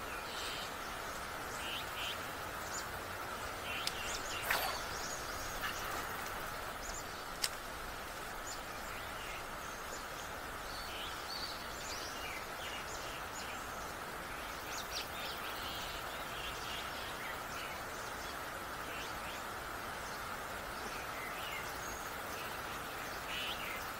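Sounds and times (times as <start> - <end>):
birds chirping: 0.0 - 16.9
steady background hiss: 0.0 - 23.9.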